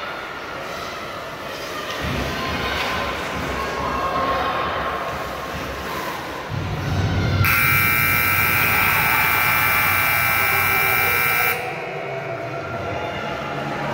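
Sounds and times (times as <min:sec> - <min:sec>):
scoreboard buzzer: 0:07.4 - 0:11.9.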